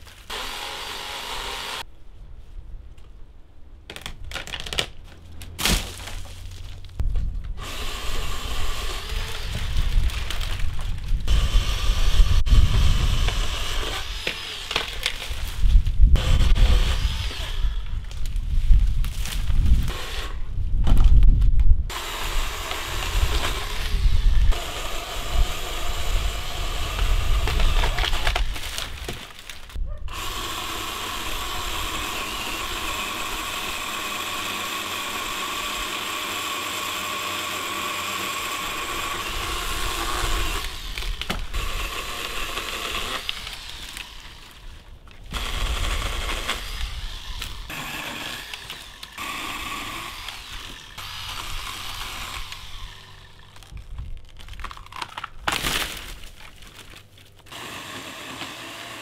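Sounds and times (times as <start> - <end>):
electric pole saw cutting: 0.3 - 1.8, 7.6 - 10.5, 11.3 - 15.2, 16.2 - 17.9, 21.9 - 28.8, 30.1 - 44.6, 45.3 - 53.6, 57.5 - 59.0.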